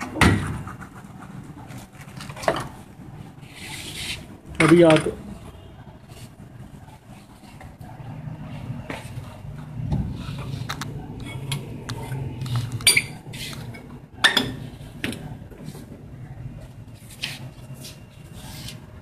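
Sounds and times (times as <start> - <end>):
metal objects clinking and knocking: 11.2 - 14.6.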